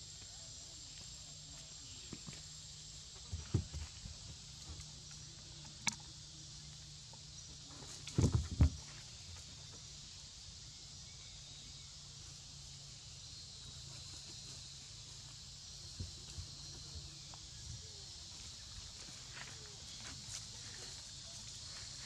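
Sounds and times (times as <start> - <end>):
outdoor background hiss: 0.0 - 22.0.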